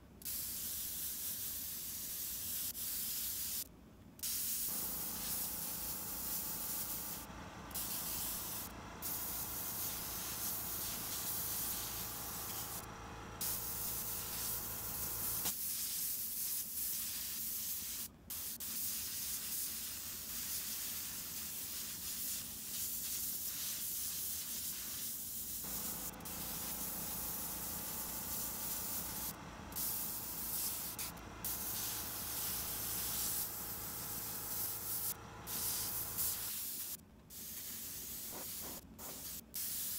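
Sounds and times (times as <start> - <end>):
airbrush spraying paint hiss: 0.2 - 39.9
steady hum: 4.7 - 15.5, 25.6 - 36.5.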